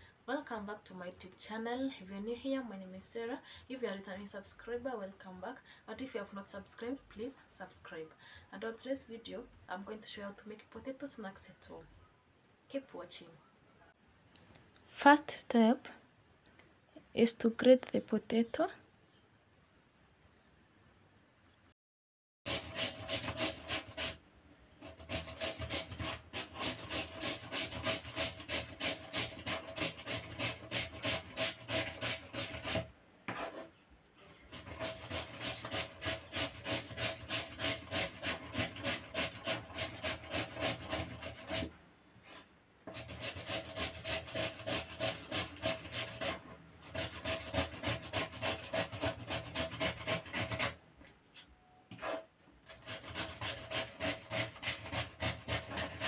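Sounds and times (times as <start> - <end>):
potato grating rasps: 22.5 - 24.2, 24.8 - 33.7, 34.5 - 50.8, 51.9 - 56.0.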